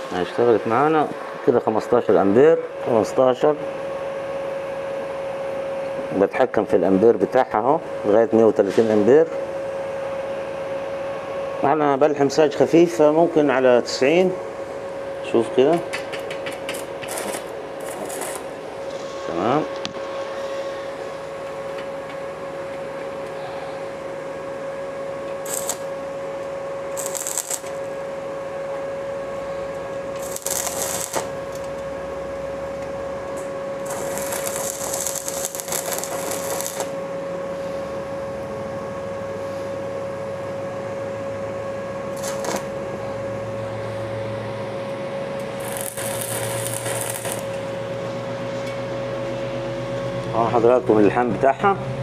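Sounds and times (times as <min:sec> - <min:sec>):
steady high hum: 0:00.0 - 0:52.0
welding arc crackling: 0:16.3 - 0:19.4, 0:25.3 - 0:28.0, 0:29.7 - 0:31.8, 0:33.8 - 0:37.0, 0:42.2 - 0:42.7, 0:45.4 - 0:47.8.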